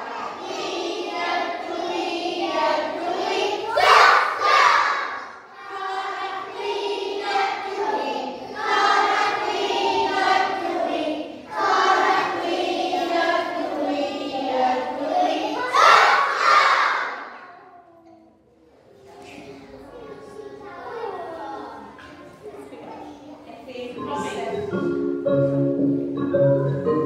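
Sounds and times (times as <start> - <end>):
children singing together: 0.0 - 23.1.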